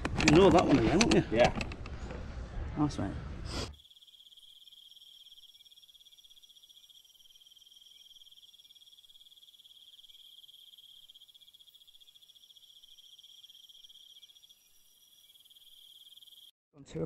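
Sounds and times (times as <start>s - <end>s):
faint insects trilling: 3.6s - 16.5s.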